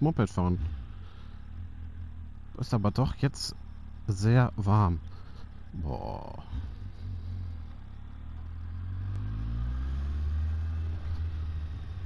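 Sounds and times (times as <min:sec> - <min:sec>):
motorcycle engine pulling away: 0:06.4 - 0:12.0.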